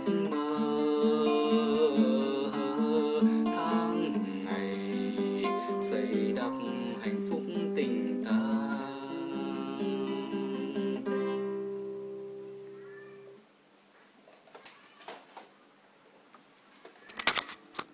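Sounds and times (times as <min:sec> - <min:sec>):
classical guitar chord ringing: 0:00.0 - 0:13.4.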